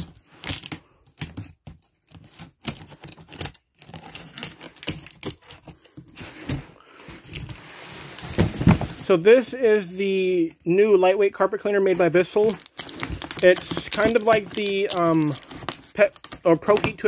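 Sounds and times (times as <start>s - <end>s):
scissors cutting packing tape: 0.0s - 5.6s, 12.6s - 17.0s
tape tearing and crinkling: 0.0s - 5.7s, 12.3s - 17.0s.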